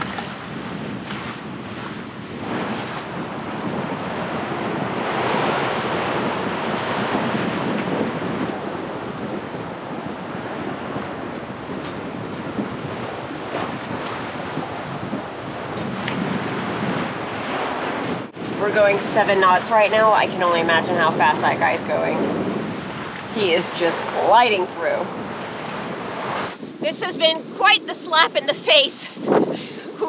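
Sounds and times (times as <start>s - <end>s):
gusty wind on microphone: 0.0s - 30.0s
waves breaking along hull: 0.0s - 30.0s.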